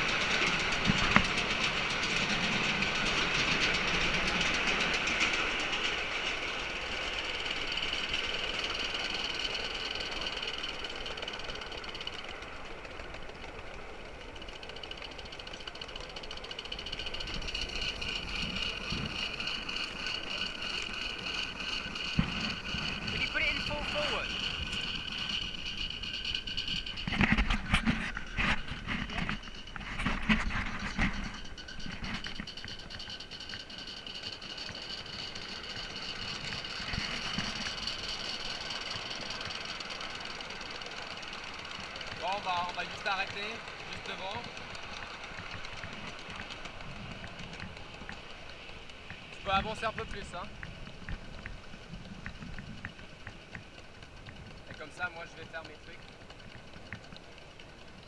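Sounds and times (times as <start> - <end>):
steady high steam hiss: 0.0 - 12.2
steam locomotive exhaust beats: 0.0 - 58.0.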